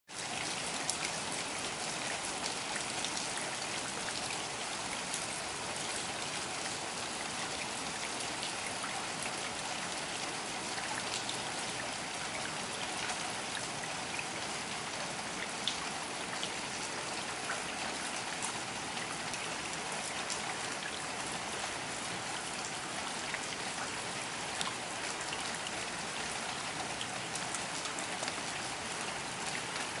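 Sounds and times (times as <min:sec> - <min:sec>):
steady rain falling: 0:00.1 - 0:30.0.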